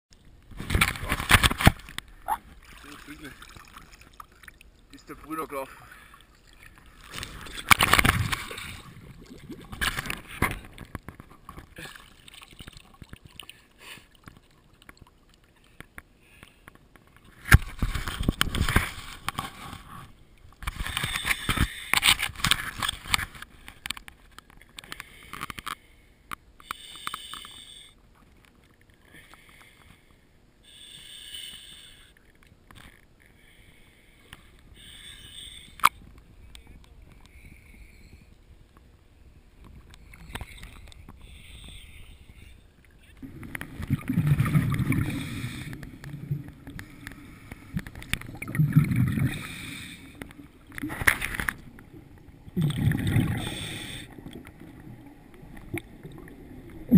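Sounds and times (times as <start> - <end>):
water splashing against camera housing: 0.4 - 4.6, 7.0 - 13.4, 17.0 - 19.9, 50.2 - 51.9.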